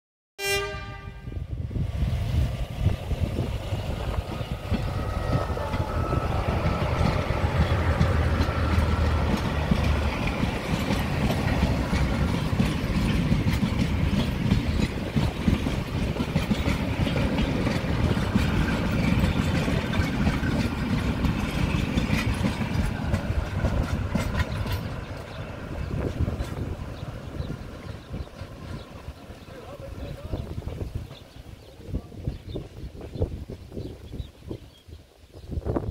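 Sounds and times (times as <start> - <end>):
train horn blast: 0.4 - 1.5, 4.7 - 9.1
train rumble: 0.4 - 34.7
wheels clicking over rail joints: 4.1 - 32.5.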